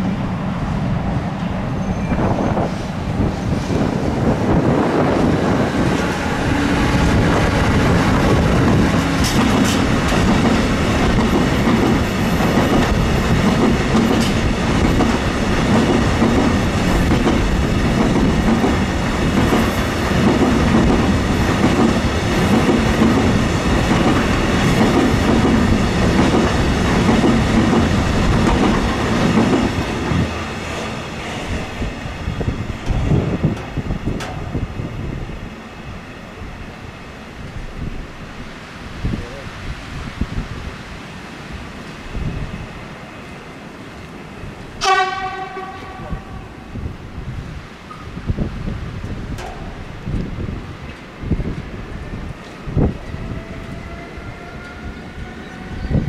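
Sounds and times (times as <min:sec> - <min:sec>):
train wheels clattering over rails: 0:03.5 - 0:34.7.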